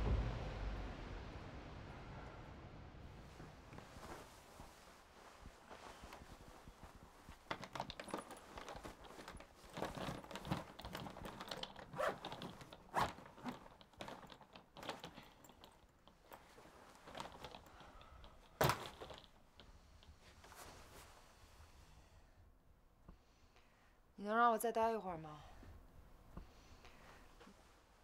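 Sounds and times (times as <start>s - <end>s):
rustling: 3.2s - 21.8s.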